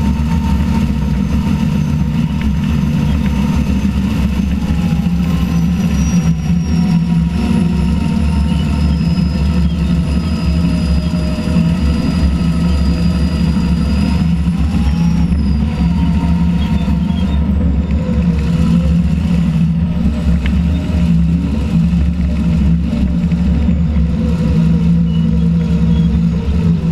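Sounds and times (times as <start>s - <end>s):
diesel engine under load: 0.0s - 26.9s.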